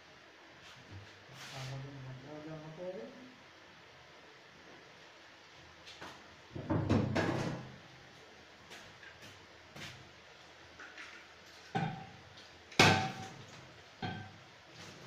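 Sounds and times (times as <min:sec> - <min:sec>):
sharp knocks and clatters: 0:06.6 - 0:07.7.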